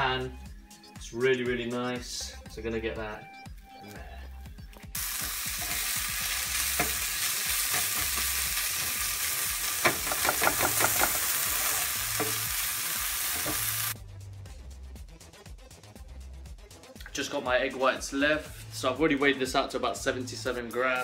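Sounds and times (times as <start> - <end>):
food sizzling in a frying pan: 5.0 - 14.0.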